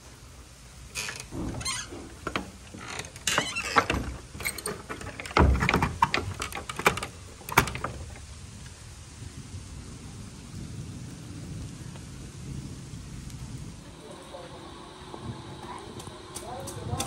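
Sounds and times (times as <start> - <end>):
latch and chain rattling: 0.9 - 8.3
door heavy thunk: 1.0 - 8.1.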